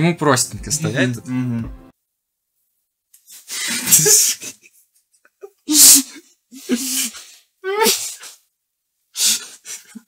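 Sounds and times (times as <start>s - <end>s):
man laughing: 3.7s - 4.7s.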